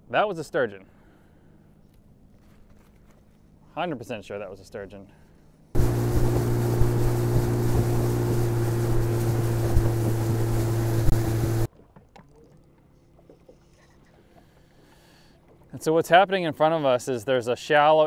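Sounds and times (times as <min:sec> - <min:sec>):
outboard motor running: 0:05.8 - 0:11.7
wind and water rushing: 0:05.8 - 0:11.7.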